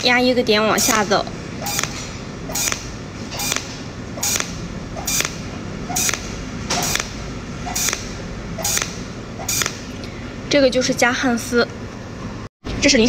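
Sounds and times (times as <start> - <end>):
pulsed spot welds: 0.7 - 9.9.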